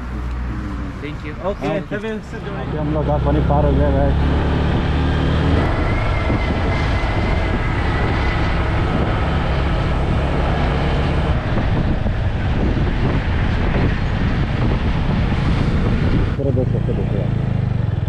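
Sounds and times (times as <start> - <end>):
wind on microphone: 4.2 - 16.6.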